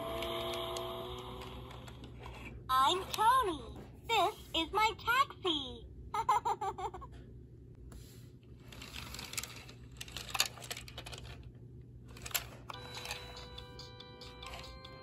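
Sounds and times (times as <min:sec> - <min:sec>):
plastic toy clicks and rattles: 0:08.7 - 0:11.5, 0:12.1 - 0:13.6, 0:14.2 - 0:15.0.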